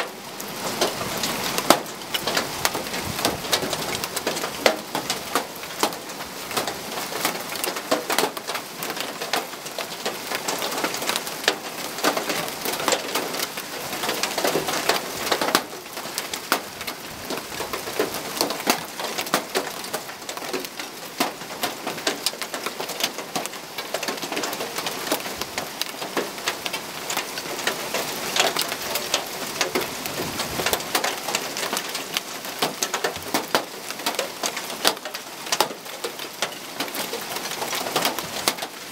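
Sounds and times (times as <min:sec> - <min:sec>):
hailstones clicking on tiles: 0:30.6 - 0:38.8.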